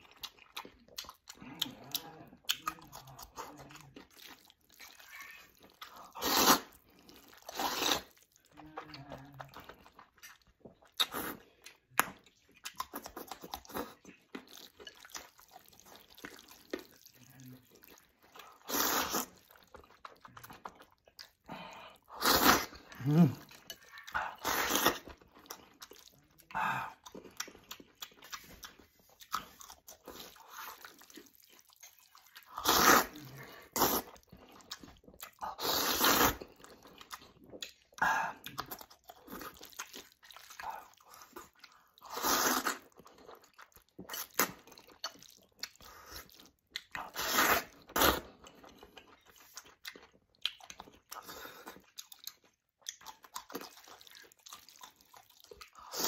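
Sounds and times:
wet chewing and crunching: 0.0s - 56.0s
man slurping noodles: 6.1s - 6.8s, 7.5s - 8.1s, 18.6s - 19.3s, 22.1s - 23.5s, 24.2s - 25.1s, 32.5s - 34.2s, 35.4s - 36.5s, 42.0s - 42.8s, 47.0s - 48.2s.

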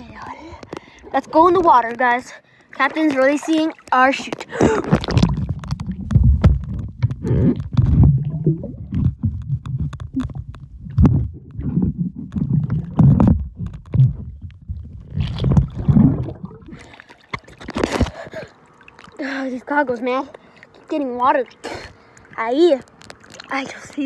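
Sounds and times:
underwater rumbling and sloshing: 0.0s - 19.2s, 20.0s - 24.0s
bubbles rushing: 2.8s - 18.1s.

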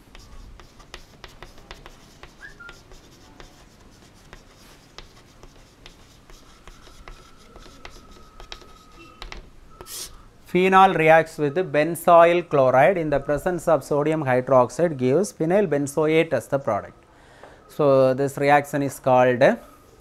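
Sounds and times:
chalk tapping and scratching: 0.0s - 10.2s.

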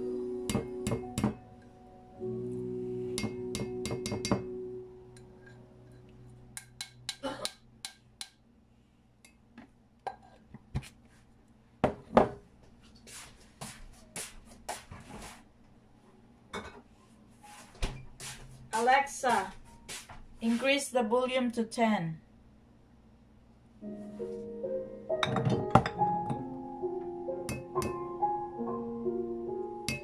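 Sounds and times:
background music: 0.0s - 7.5s, 18.7s - 20.1s, 23.8s - 30.0s.

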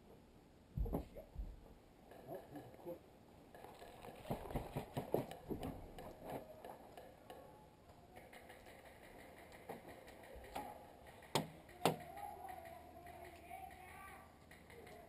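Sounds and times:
faint irregular clicks and knocks: 0.8s - 15.0s.

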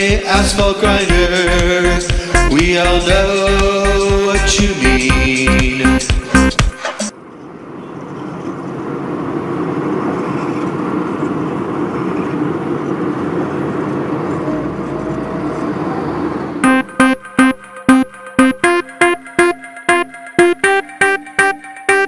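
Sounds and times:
heavy milling machine working: 6.1s - 16.7s.

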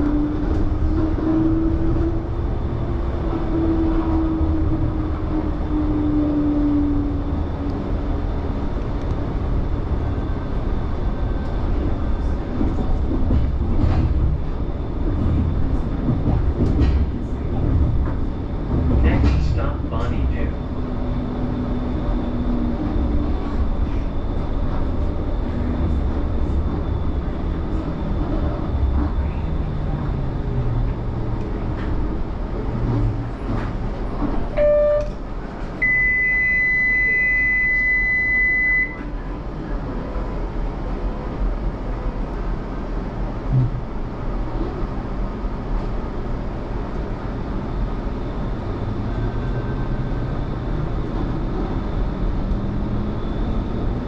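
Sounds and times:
tram motor whine: 0.0s - 54.0s
tram running rumble: 0.0s - 54.0s
steady high beep: 34.6s - 35.1s, 35.8s - 39.0s.

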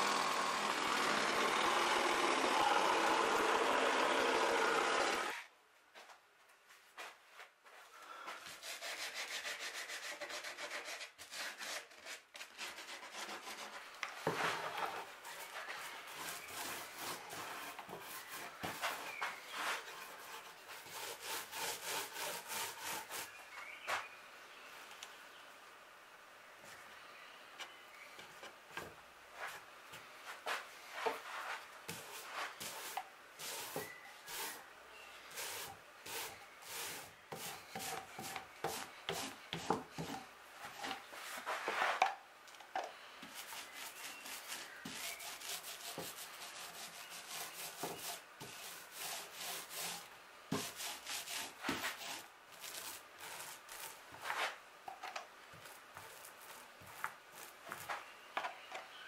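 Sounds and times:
brush scratching on cloth: 8.5s - 23.4s, 30.5s - 34.6s, 35.3s - 40.1s, 43.3s - 54.6s, 55.6s - 58.1s.

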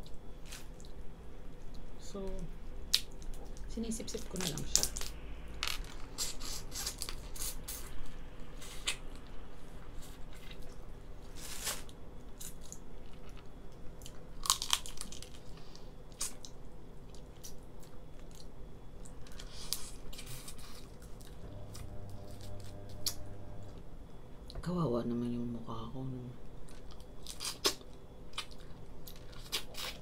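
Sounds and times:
lobster shell cracking: 14.4s - 15.4s.

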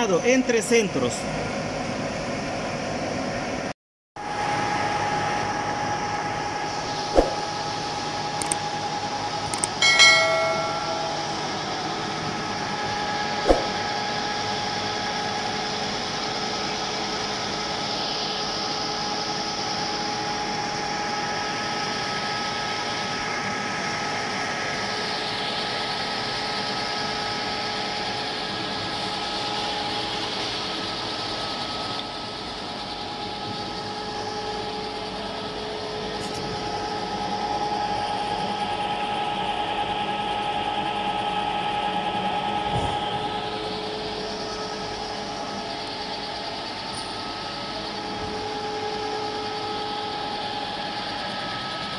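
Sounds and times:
lathe cutting metal whine: 4.3s - 51.9s
short click: 8.4s - 8.6s
sharp metallic strike ringing: 9.8s - 12.0s.

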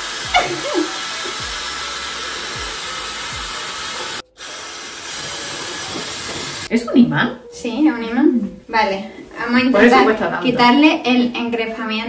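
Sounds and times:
hair dryer blowing with whine: 0.0s - 6.7s.

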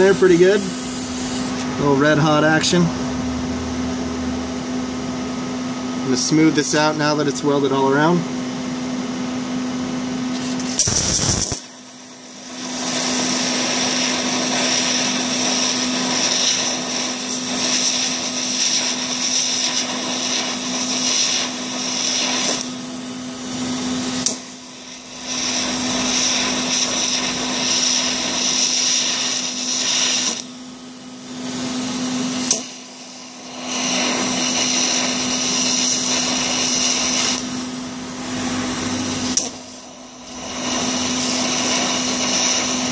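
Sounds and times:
welding arc hissing: 0.0s - 1.6s, 10.3s - 42.9s.

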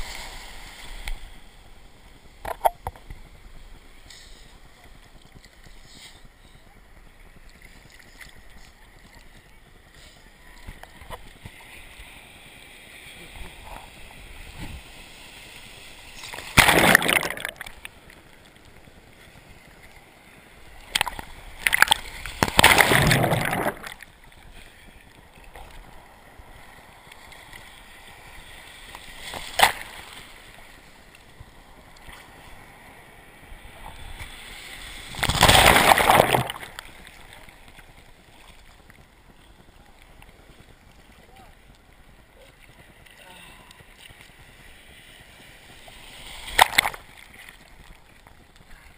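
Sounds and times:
waves splashing: 0.0s - 48.9s
water sloshing and gurgling: 13.2s - 39.4s, 45.6s - 48.7s.

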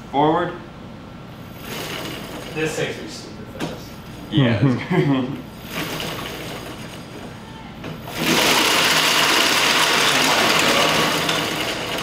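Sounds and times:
electric motor whirring: 8.0s - 12.0s.

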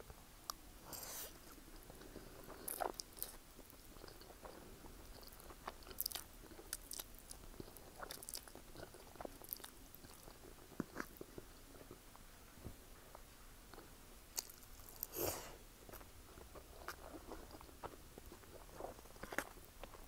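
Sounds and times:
chewing: 0.5s - 12.0s, 13.1s - 20.0s.

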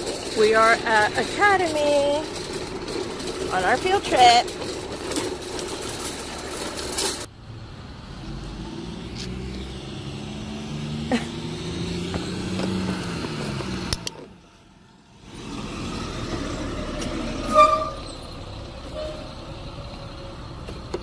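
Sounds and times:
vehicle engine driving past: 4.3s - 20.6s
sharp clicks: 12.9s - 14.2s.

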